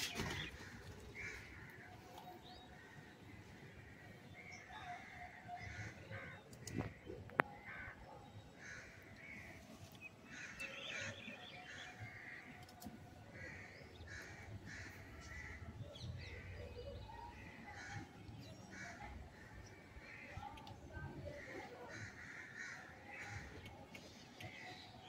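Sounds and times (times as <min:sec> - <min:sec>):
crows cawing: 0:21.6 - 0:23.5.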